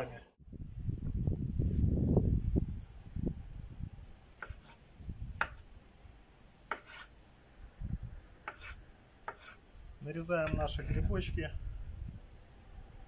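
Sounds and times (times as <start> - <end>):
knife slicing mushrooms on board: 6.7 - 7.1, 8.5 - 9.6.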